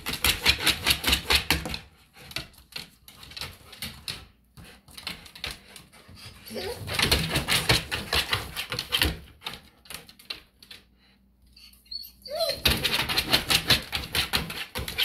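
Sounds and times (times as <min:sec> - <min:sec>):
dog claws scratching on linoleum: 0:00.0 - 0:10.9, 0:12.3 - 0:15.0
dog whining: 0:06.3 - 0:07.0, 0:11.5 - 0:13.1.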